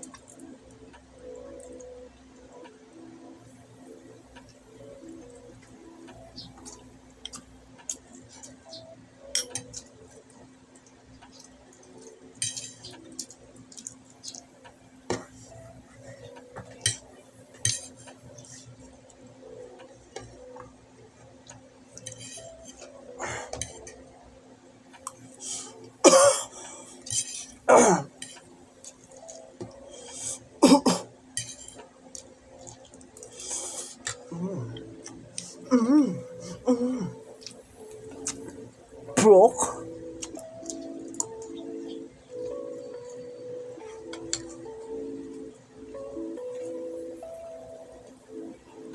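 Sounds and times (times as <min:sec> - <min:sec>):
cutlery clinking on a dish: 0:09.3 - 0:09.8, 0:12.4 - 0:13.0, 0:17.6 - 0:18.0.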